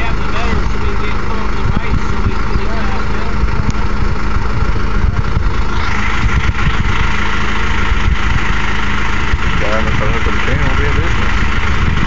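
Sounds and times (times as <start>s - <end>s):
tractor diesel engine idling: 0.0s - 12.0s.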